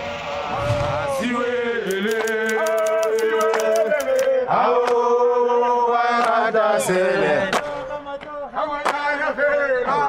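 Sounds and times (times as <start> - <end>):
sharp hits: 0.0 - 1.8.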